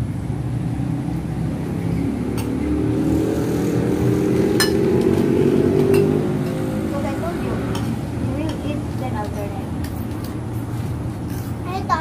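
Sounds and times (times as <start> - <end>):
dishes clinking on a table: 4.6 - 4.9.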